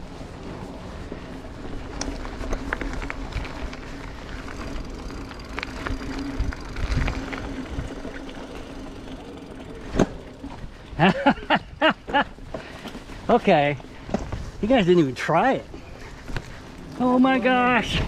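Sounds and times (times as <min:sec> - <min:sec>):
wind rumble: 0:00.0 - 0:15.0
off-road vehicle engine drone: 0:00.0 - 0:18.0.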